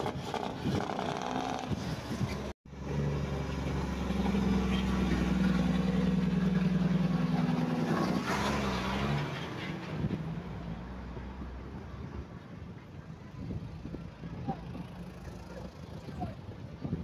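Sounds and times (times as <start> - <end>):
diesel truck engine passing: 2.7 - 12.1.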